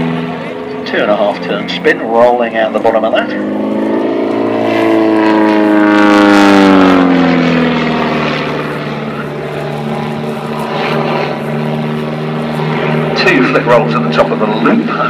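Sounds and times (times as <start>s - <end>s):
propeller plane engine: 0.0s - 15.0s.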